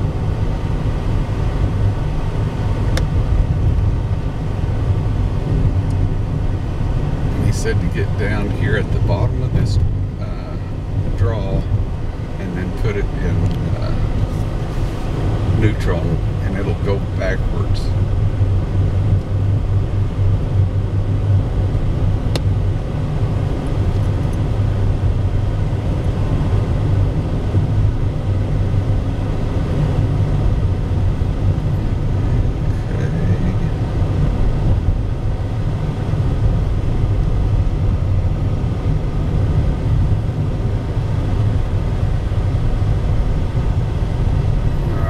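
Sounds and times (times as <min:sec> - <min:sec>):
car engine and tyres rumbling: 0:00.0 - 0:45.0.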